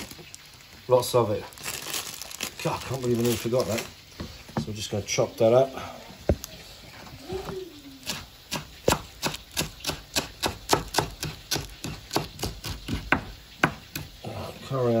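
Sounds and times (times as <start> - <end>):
knife chopping on cutting board: 8.1 - 14.1.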